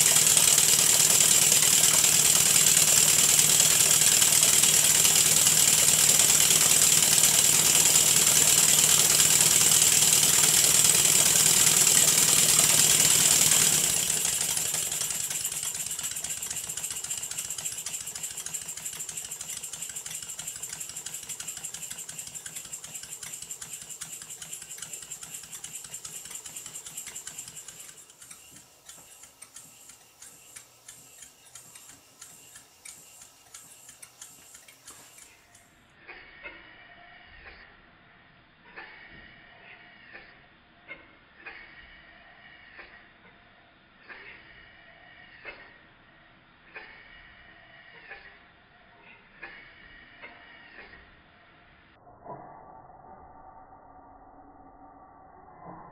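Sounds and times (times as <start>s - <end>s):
model engines running on air: 0.0s - 35.6s.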